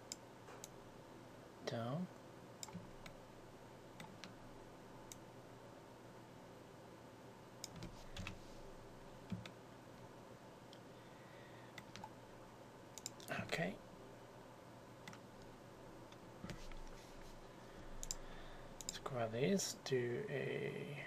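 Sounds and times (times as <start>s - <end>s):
low room hum: 0.0s - 21.0s
mouse and keyboard clicks: 2.6s - 3.2s, 7.6s - 8.4s.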